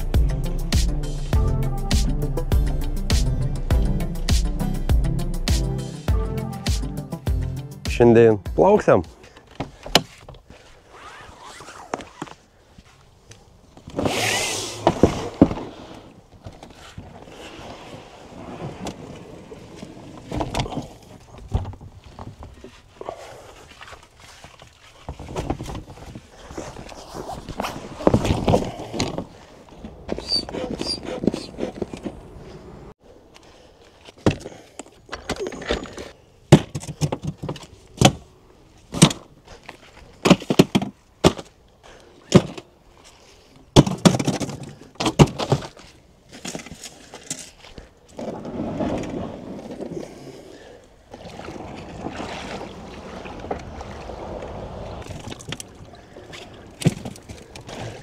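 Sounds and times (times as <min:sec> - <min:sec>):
knocks and thumps on a boat: 0:20.0 - 0:22.7, 0:25.0 - 0:26.3, 0:36.5 - 0:38.3, 0:43.7 - 0:45.9, 0:56.7 - 0:58.0.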